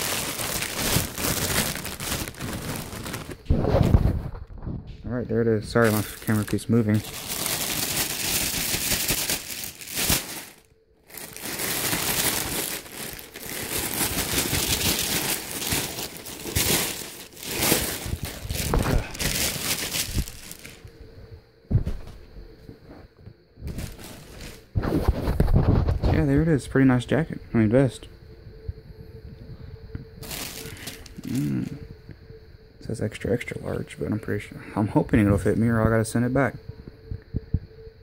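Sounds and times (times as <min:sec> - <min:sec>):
plastic bag crinkling: 0:00.0 - 0:04.5, 0:05.6 - 0:20.9, 0:23.7 - 0:26.0, 0:30.2 - 0:31.8.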